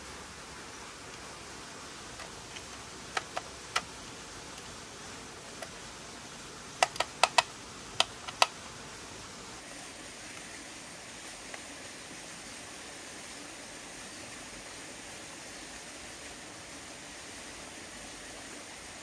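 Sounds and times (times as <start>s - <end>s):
low hiss: 0.0s - 19.0s
screwdriver clicking on screws: 2.2s - 3.9s, 6.8s - 8.5s.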